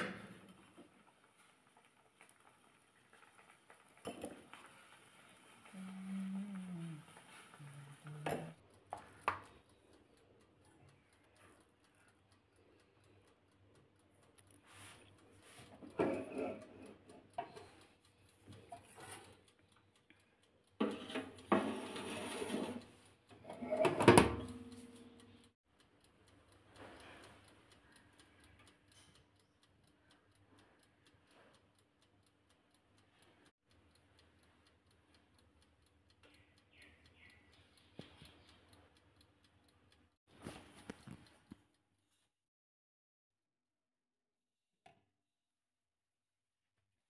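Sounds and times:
oven timer ticking: 4.0 - 41.8
oven low hum: 4.8 - 13.2, 20.8 - 25.5.

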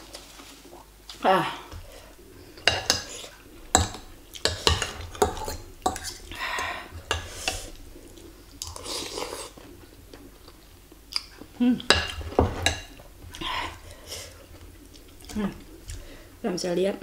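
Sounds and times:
cutlery clinking on ceramic bowl: 3.8 - 6.2.

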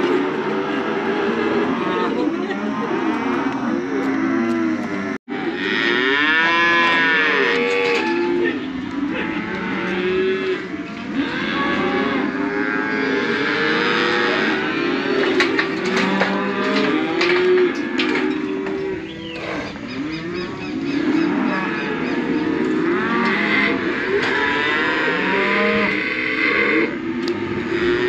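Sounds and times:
cattle mooing and bellowing: 0.0 - 28.0.

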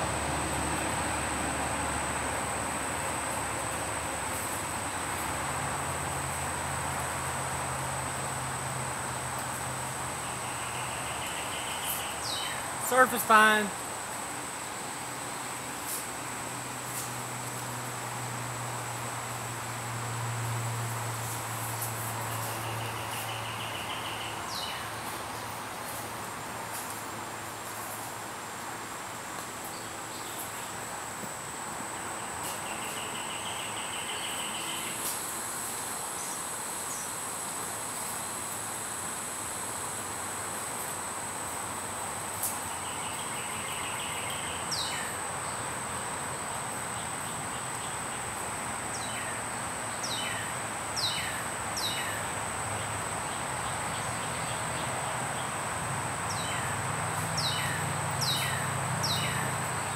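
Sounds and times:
insect chorus drone: 0.0 - 59.9
bird chirps: 57.4 - 59.5.

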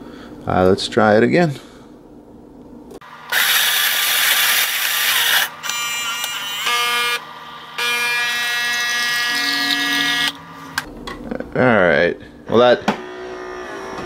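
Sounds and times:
coffee grinder whirring: 3.0 - 7.8.

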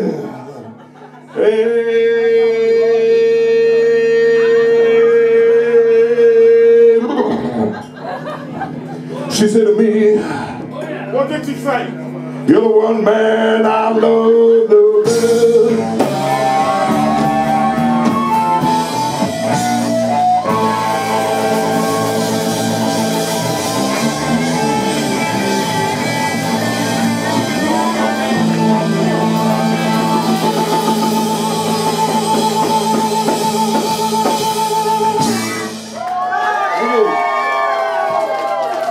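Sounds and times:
electric blues band playing: 10.6 - 36.4
harmonica: 15.1 - 35.9.

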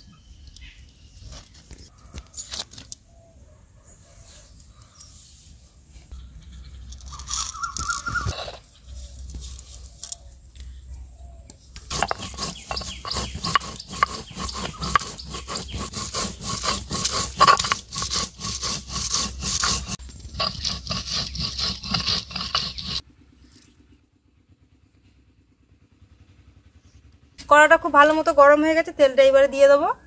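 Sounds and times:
stone roller scraping on grinding stone: 6.5 - 10.1, 11.9 - 23.0.

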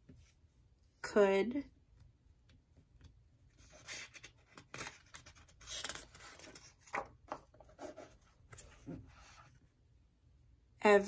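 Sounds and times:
paper cards rustling and scraping: 3.0 - 9.6.

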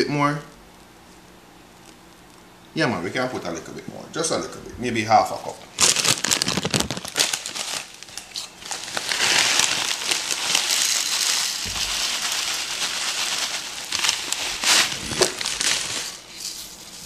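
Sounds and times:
packaging crinkling: 5.7 - 17.0
cereal pouring hiss: 8.6 - 17.0.

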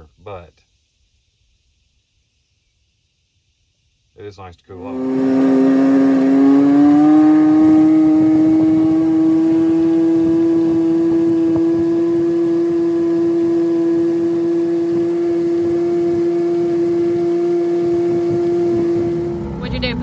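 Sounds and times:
outboard motor running: 4.7 - 20.0.

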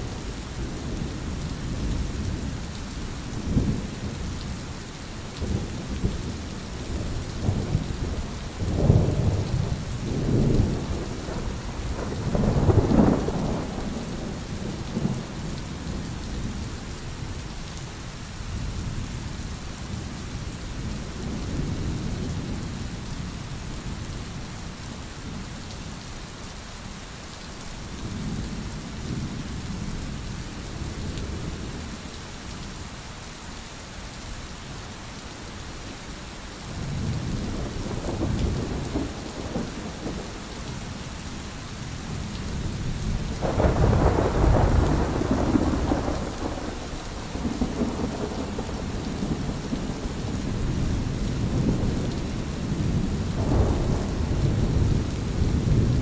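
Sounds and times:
steady rain: 0.0 - 56.0
rolling thunder: 5.4 - 16.6, 42.1 - 56.0.

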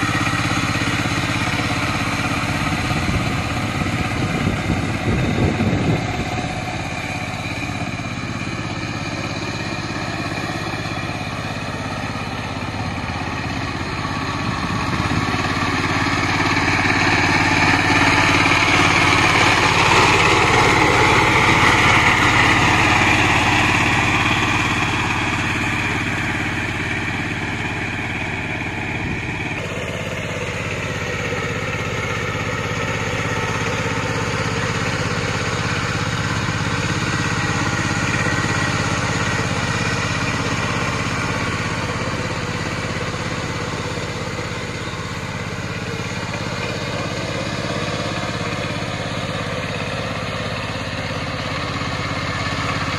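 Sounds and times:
diesel engine running: 0.0 - 52.9
wheels working through wet mud: 0.0 - 52.9.

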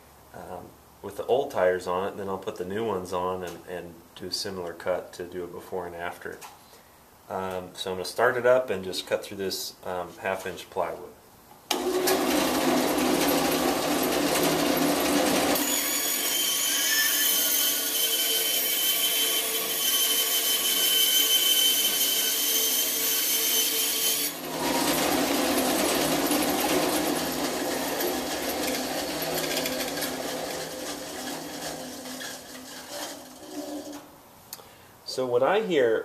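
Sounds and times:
bandsaw running: 11.7 - 34.1
saw blade cutting plywood: 11.7 - 34.1.

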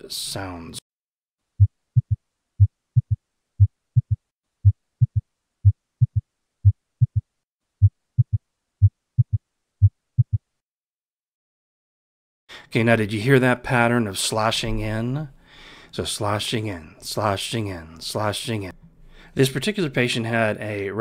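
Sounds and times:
heartbeat thumps: 1.6 - 10.5.

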